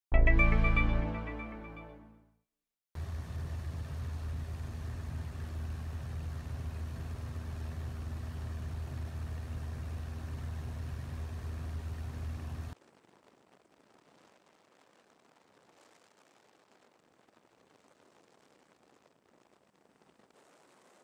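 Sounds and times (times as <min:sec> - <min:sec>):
aircraft engine drone: 0:03.0 - 0:12.8.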